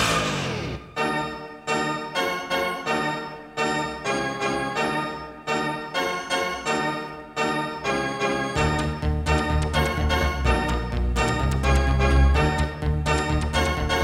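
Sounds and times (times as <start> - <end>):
electronic keyboard chord stabs: 0.0 - 2.2, 8.6 - 14.0.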